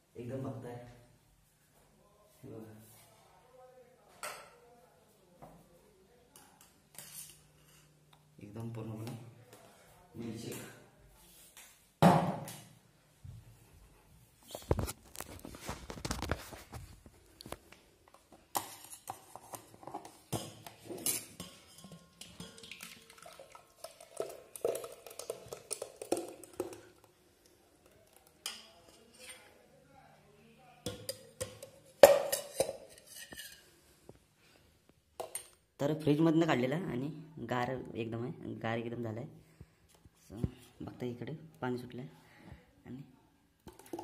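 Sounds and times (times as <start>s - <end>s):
steel pots knocking and clinking: 18.5s - 27.0s
liquid pouring: 22.2s - 27.2s.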